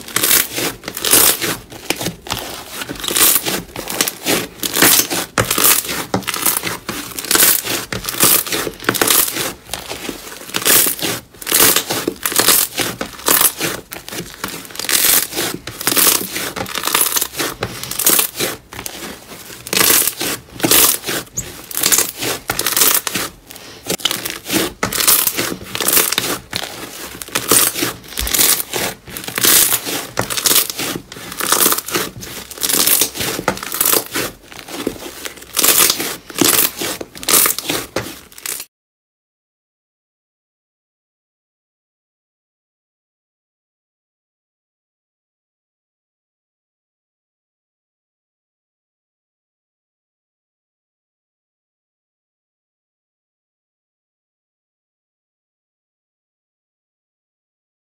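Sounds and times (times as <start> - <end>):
slime crackling and squelching: 0.0 - 38.7.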